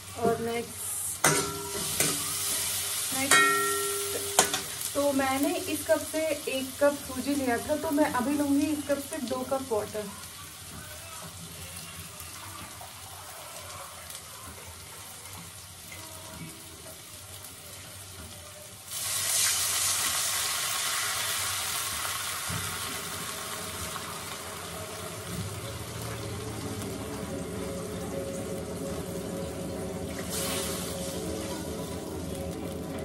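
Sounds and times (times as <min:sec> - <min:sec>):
vegetables frying in a pan: 0:00.0 - 0:33.0
water poured into hot pan hissing: 0:00.7 - 0:03.2, 0:18.8 - 0:26.9, 0:30.0 - 0:32.7.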